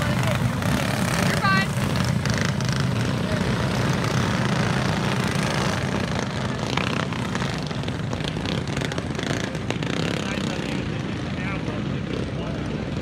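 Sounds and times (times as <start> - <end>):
go-kart engines buzzing: 0.0 - 13.0.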